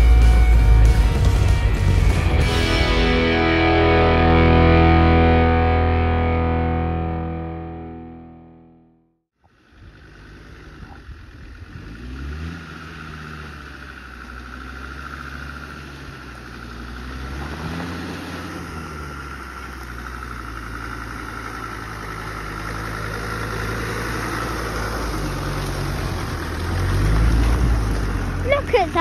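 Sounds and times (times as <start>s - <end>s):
vehicle engine running at low revs: 9.4s - 29.0s.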